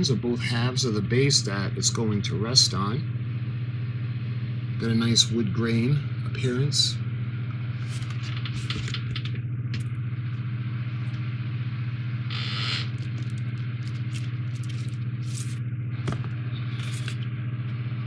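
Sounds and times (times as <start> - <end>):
low hum with overtones: 0.0 - 18.0
card sheets rustling: 7.8 - 9.0, 12.9 - 17.2.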